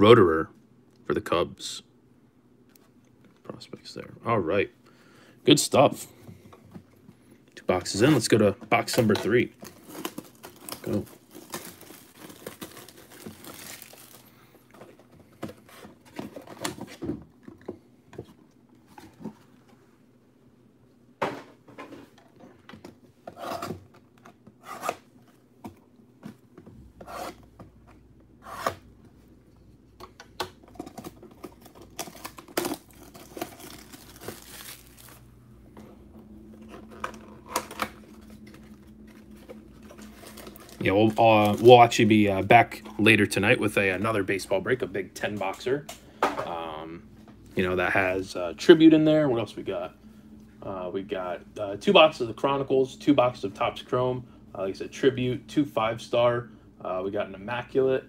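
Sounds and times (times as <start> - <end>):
cardboard and plastic wrap handling: 7.8 - 17.0, 30.7 - 35.3, 36.5 - 42.6.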